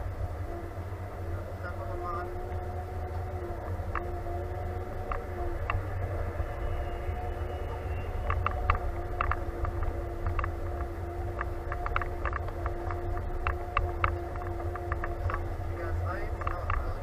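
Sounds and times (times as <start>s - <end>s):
tractor diesel engine rumbling: 0.0s - 17.0s.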